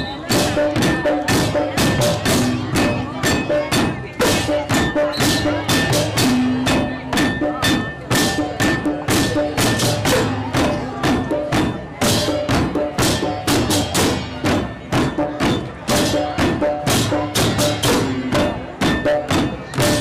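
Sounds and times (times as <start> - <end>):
held gamelan tones: 0.0 - 20.0
slit drums clacking: 0.0 - 20.0
hand drum: 0.2 - 20.0.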